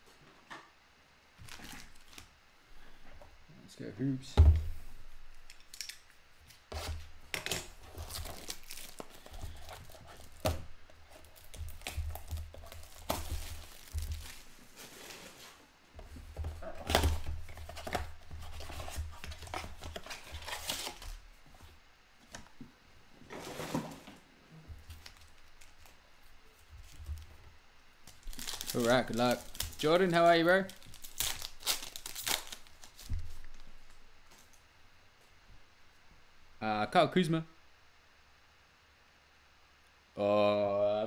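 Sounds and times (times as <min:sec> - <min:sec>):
foil packs rustling: 0:01.4 - 0:02.3, 0:06.8 - 0:21.2, 0:28.0 - 0:34.6
plastic wrap crinkling and tearing: 0:01.4 - 0:02.3, 0:06.8 - 0:15.6, 0:16.6 - 0:21.2, 0:24.8 - 0:27.3, 0:28.0 - 0:34.6
knocks and thuds of handling: 0:04.3 - 0:04.8.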